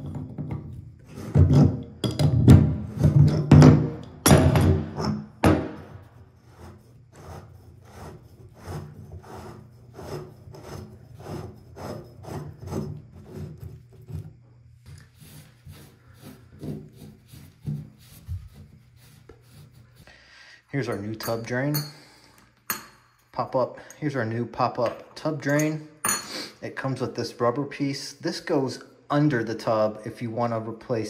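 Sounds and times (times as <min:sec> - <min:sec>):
metal drain flange scraping: 0:00.0 - 0:20.0.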